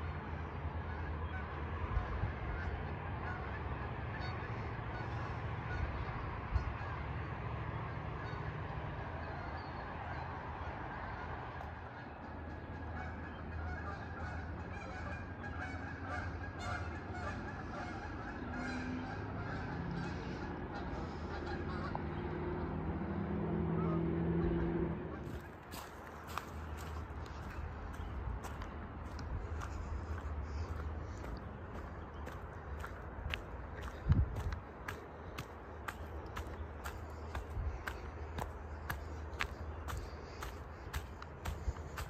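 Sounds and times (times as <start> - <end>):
geese honking: 0.0 - 42.0
steady low rumble: 25.0 - 42.0.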